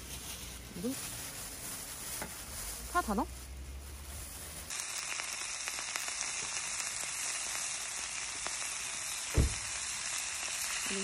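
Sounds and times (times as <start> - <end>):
meat sizzling on griddle: 2.7 - 11.0.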